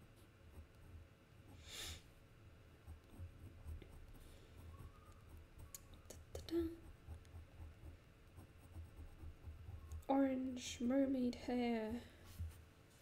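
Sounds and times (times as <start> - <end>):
pen scratching on paper: 2.8 - 10.1.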